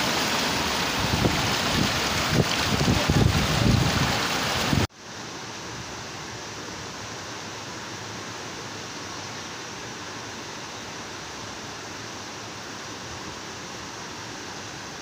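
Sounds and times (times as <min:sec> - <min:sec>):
floodwater rushing: 0:00.0 - 0:04.9
wind buffeting microphone: 0:00.8 - 0:04.9.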